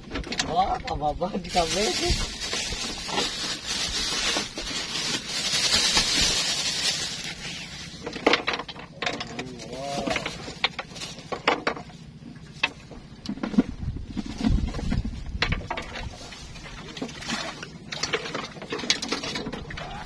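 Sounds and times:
fishing gear clicking and knocking: 0.0s - 1.2s, 8.0s - 16.2s, 17.8s - 20.0s.

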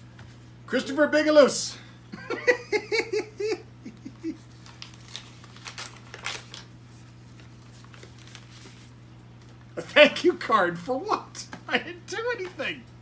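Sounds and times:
steady low hum: 0.0s - 13.0s
paper envelope tearing: 4.5s - 8.9s.

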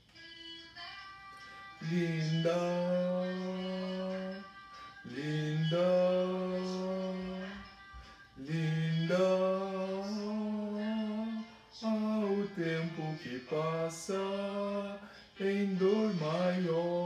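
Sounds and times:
man singing slow song: 1.8s - 17.0s.

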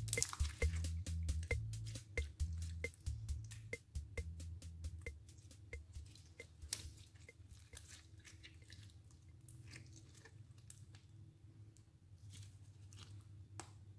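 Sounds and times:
slime crackling and popping: 0.0s - 0.8s.

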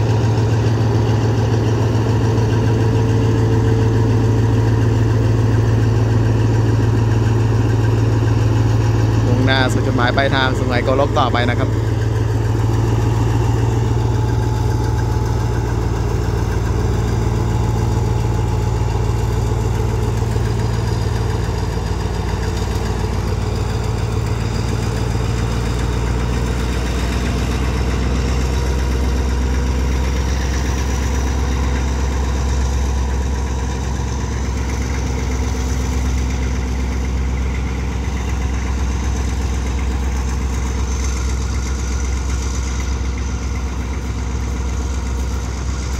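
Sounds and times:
locomotive engine drone: 0.0s - 45.9s.

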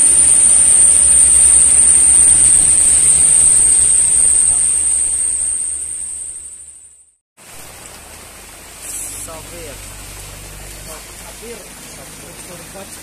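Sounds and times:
heavy rain hissing: 0.0s - 6.4s, 7.4s - 13.0s
high-pitched insect drone: 0.0s - 6.9s
traffic rumble on wet road: 7.5s - 13.0s.

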